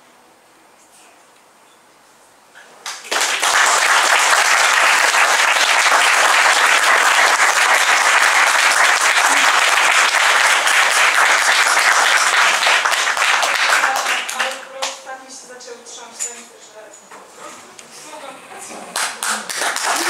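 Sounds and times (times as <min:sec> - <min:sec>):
small audience applauding: 0:02.8 - 0:15.0, 0:18.9 - 0:20.0.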